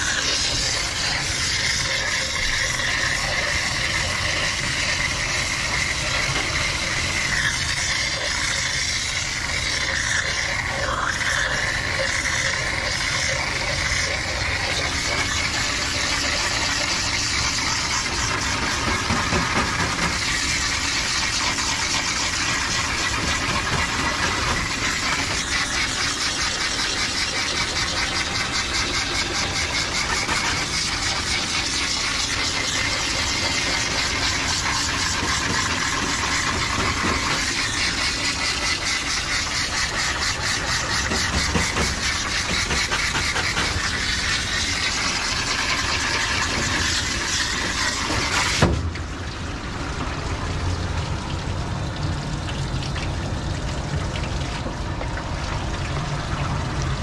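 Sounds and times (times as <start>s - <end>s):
water spraying from nozzle: 0.0s - 49.2s
pump motor running: 0.0s - 57.0s.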